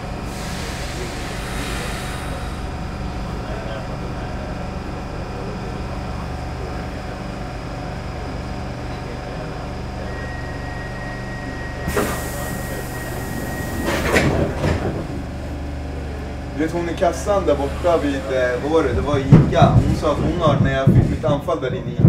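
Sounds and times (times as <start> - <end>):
train equipment humming: 0.0 - 22.0
clatter of knocks: 19.0 - 22.0.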